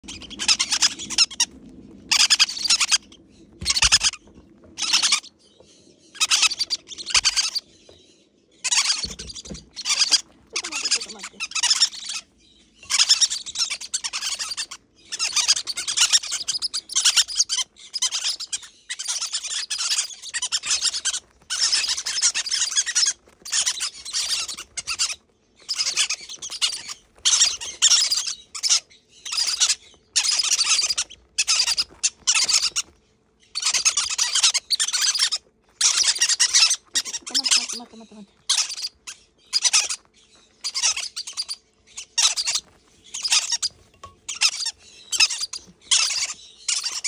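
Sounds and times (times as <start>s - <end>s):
parrot chicks begging calls: 0.0s - 47.0s.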